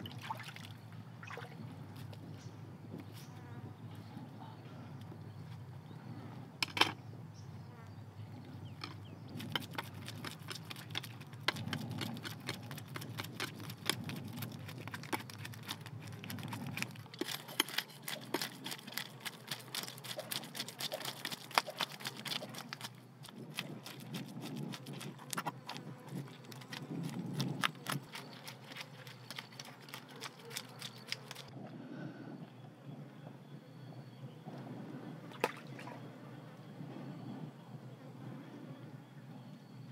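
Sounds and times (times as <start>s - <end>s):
knife scraping fish scales: 9.4s - 31.5s.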